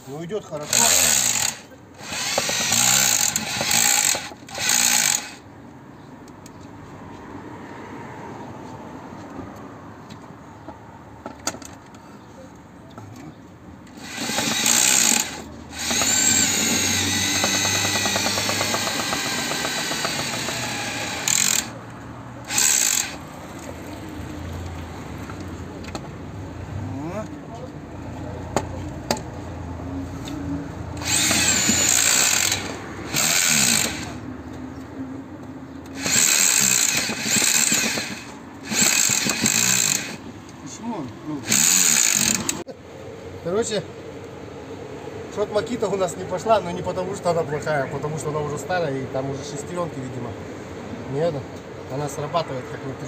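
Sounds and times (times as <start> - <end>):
rotary hammer drilling into soil: 0.6 - 5.4, 13.9 - 21.8, 22.5 - 23.2, 31.0 - 34.2, 35.9 - 40.2, 41.4 - 42.6.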